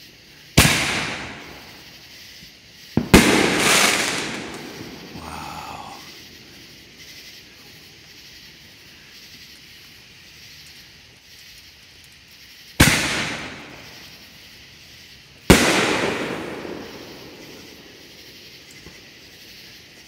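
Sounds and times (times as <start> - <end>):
firework mortar launch bang: 0.6 - 1.9, 3.0 - 5.2, 12.8 - 14.2, 15.5 - 19.0.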